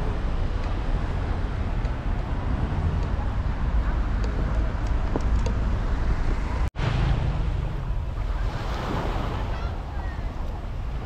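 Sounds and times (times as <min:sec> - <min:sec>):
wind rumbling on microphone: 0:00.0 - 0:11.0
sea waves breaking: 0:06.4 - 0:11.0.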